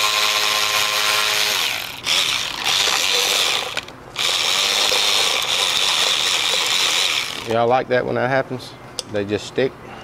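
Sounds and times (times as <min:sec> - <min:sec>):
power tool whining: 0:00.0 - 0:07.5.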